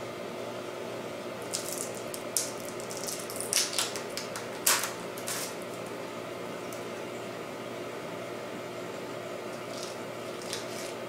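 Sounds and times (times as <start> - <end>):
steady low hum: 0.0 - 11.0
cabbage leaves snapping: 1.4 - 5.8, 9.5 - 11.0.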